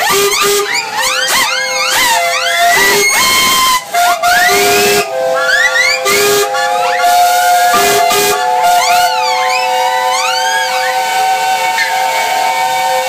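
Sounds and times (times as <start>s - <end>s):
low whistle short blasts: 0.0s - 13.0s
steam hissing: 0.0s - 13.0s
steam whistles blowing: 0.0s - 13.0s.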